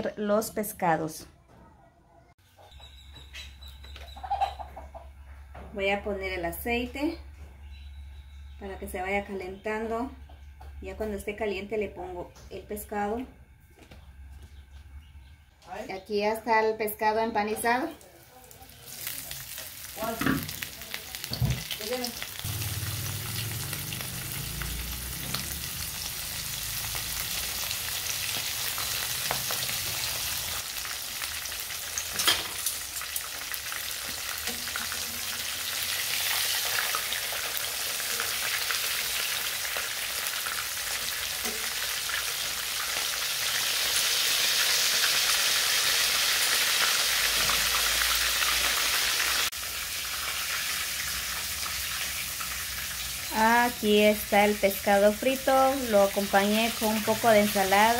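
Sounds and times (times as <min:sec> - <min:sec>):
fish sizzling in hot oil: 0:18.5 - 0:57.9.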